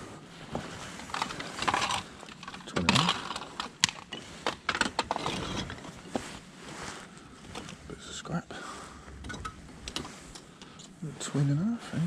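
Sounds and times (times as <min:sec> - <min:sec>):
bricks clinking and scraping: 0:01.0 - 0:06.2.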